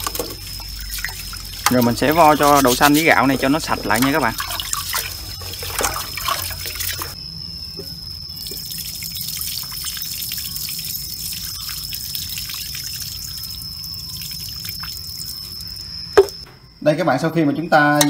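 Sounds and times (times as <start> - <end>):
grains swished in water in metal pot: 0.0 - 7.2
water splash: 0.0 - 7.2
water trickling and dripping: 0.0 - 7.2, 7.8 - 16.4.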